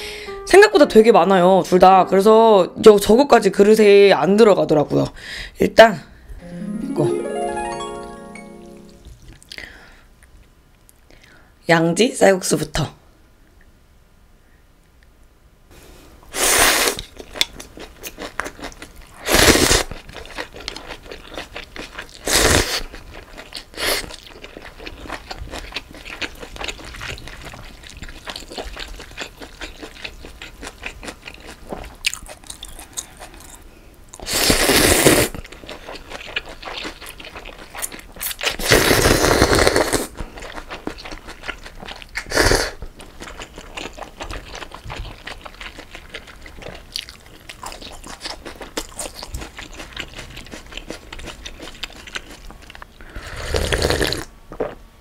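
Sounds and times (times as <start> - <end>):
soft wet chewing: 16.9 - 34.3, 35.3 - 38.7, 39.8 - 53.2
slurping noodles: 19.2 - 20.1, 22.2 - 22.9, 34.2 - 35.5, 37.8 - 41.0, 41.8 - 42.8, 53.1 - 54.3.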